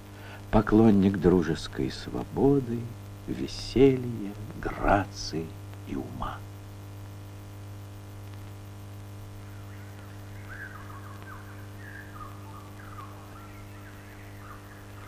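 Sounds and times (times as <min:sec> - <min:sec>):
steady low hum: 0:00.0 - 0:15.0
birds chirping: 0:09.4 - 0:15.0.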